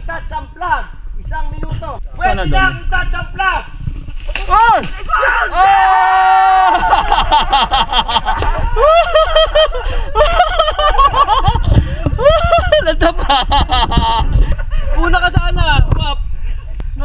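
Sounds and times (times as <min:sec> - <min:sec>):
people talking: 0:00.0 - 0:03.7
people laughing: 0:06.4 - 0:15.2.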